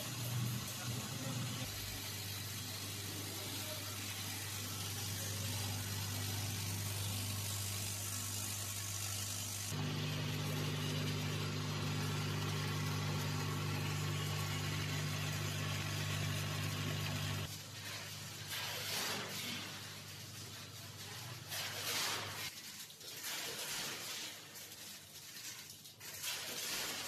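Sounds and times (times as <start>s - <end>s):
vibratory feeder electric hum: 0.0s - 17.5s.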